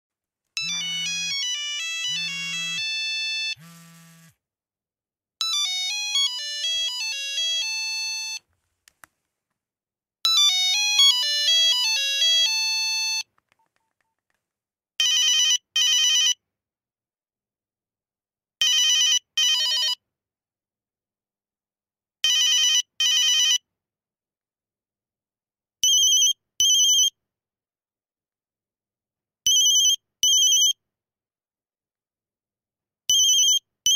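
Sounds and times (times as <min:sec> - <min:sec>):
mobile phone ringtone melodies: 0:00.6 - 0:03.9, 0:05.4 - 0:08.4, 0:10.3 - 0:13.3, 0:15.0 - 0:16.4
low buzz: 0:03.5 - 0:04.4.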